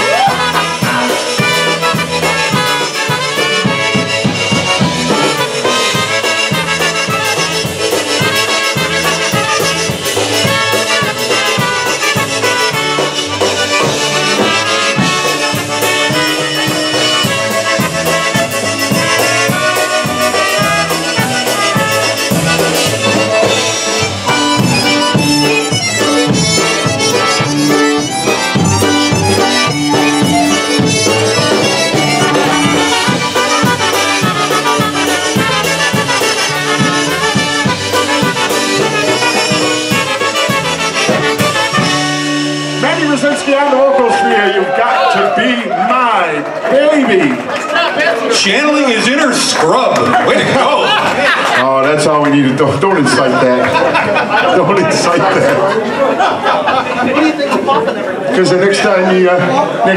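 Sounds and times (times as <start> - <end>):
bouncing bass beat: 0.0 - 43.0
concertina melody: 0.0 - 44.6
trumpet: 0.0 - 46.3.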